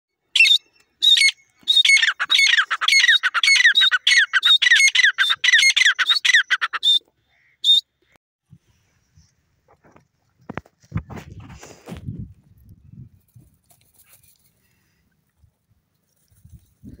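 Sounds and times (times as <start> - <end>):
francolin shrill calls: 0.3 - 7.8.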